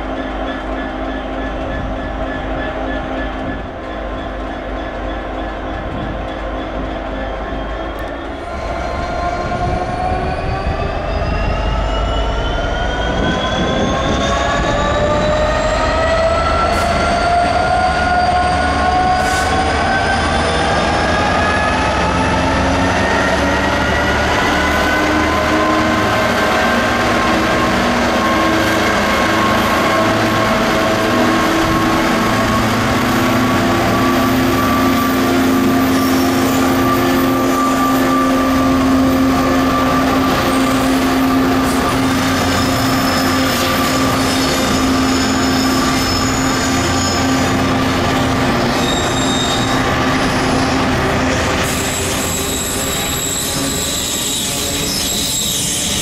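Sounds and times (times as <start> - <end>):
diesel locomotive engine: 0.0 - 56.0
high-pitched wheel squeal: 33.9 - 56.0.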